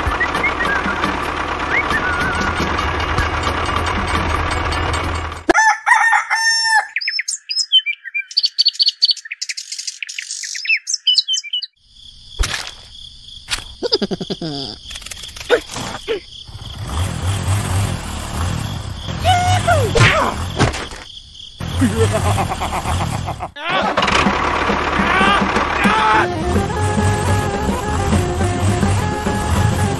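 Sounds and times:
birds chirping: 6.7 - 11.8.

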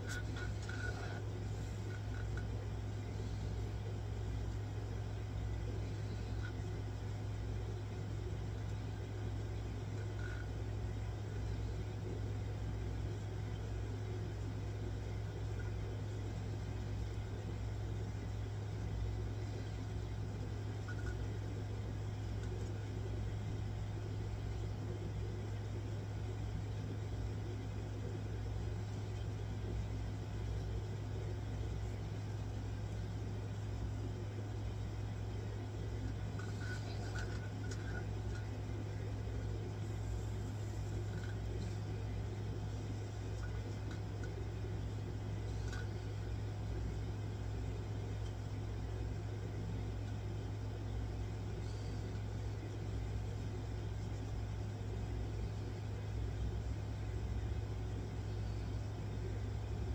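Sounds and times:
low hum and rumble: 0.0 - 59.9.

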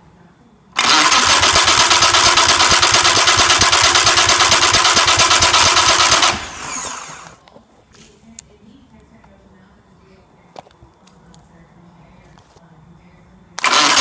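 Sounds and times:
starter motor cranking outboard engine: 0.8 - 7.4, 13.6 - 14.0.

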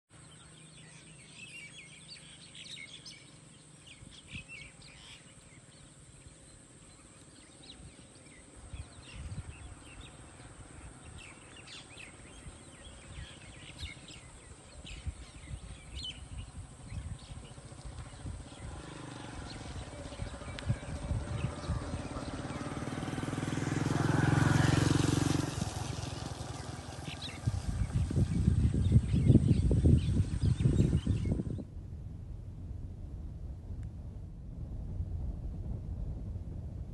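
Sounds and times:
bird chirps: 0.2 - 23.1
motor vehicle engine: 0.2 - 36.8.

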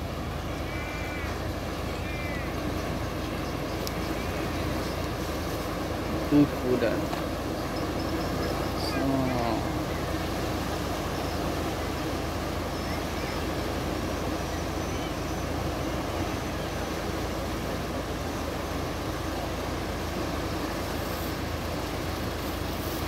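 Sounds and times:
tidal bore water rushing: 0.0 - 23.0.

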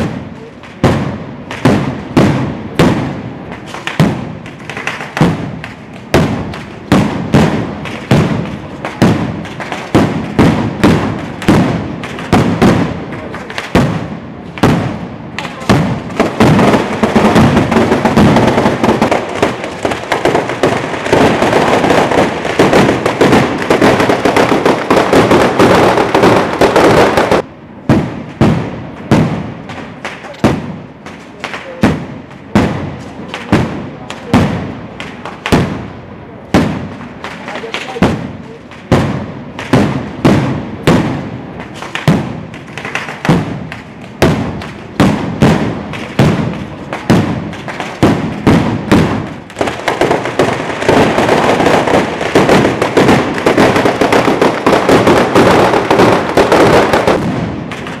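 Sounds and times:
firecrackers banging: 0.0 - 58.0.

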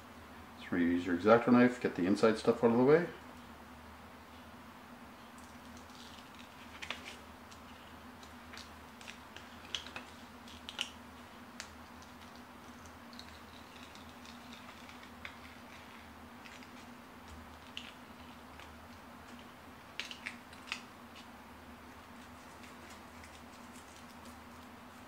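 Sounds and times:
steady low hum: 0.0 - 25.0
knife clicking and scratching vinyl: 5.5 - 11.0, 11.6 - 21.3.

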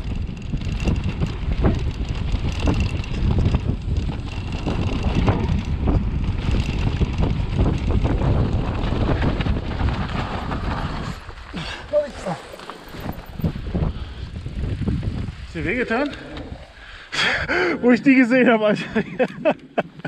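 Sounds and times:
bike knocks and rattles: 0.0 - 11.5
wind buffeting microphone: 0.0 - 18.0.

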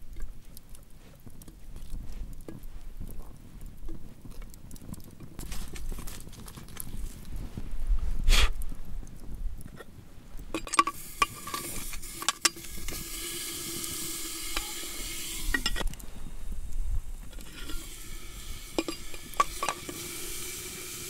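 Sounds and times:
stone and tongs clinking on metal can: 10.6 - 15.9, 17.4 - 21.0
meat sizzling: 10.6 - 21.0.

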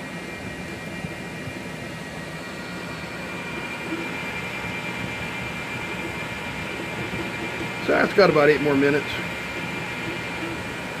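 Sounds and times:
high steady whine: 0.0 - 11.0
printer fans and motors whirring: 0.0 - 11.0.

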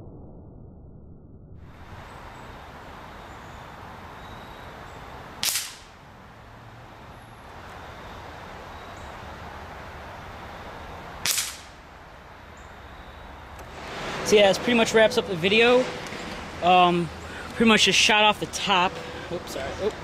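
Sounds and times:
air rifle shots: 5.4 - 6.0, 11.2 - 11.8.

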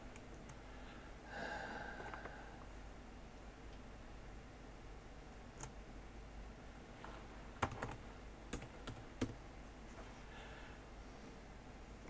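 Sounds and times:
laptop keyboard keystrokes: 7.6 - 9.4.

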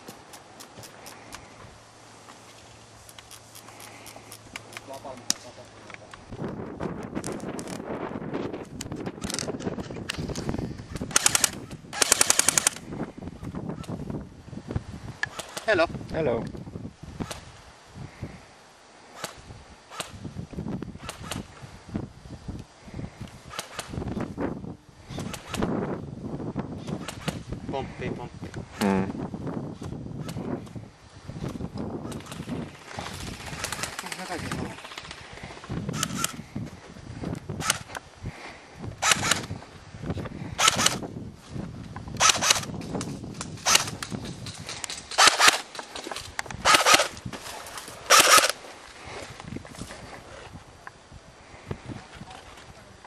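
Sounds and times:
airsoft gun shots: 11.1 - 12.8, 40.6 - 41.0, 42.2 - 42.7, 43.6 - 44.0, 45.1 - 45.7, 46.6 - 47.1, 48.1 - 48.6.

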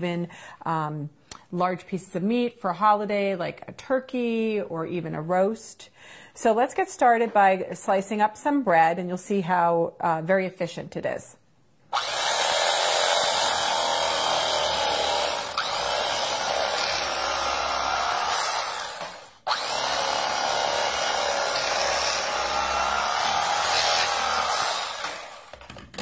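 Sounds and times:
electric knife sawing through bread: 12.0 - 25.6.

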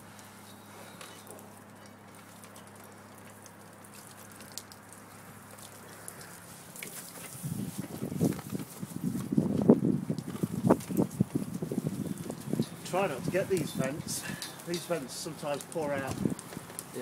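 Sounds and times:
water jets pattering on glass: 0.0 - 17.0
brush scrubbing window glass: 3.8 - 17.0.

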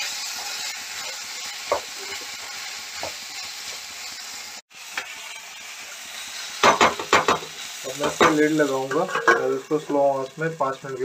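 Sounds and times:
vegetables sizzling in a pan: 0.0 - 11.0
spatula knocking against pan: 6.6 - 7.5.

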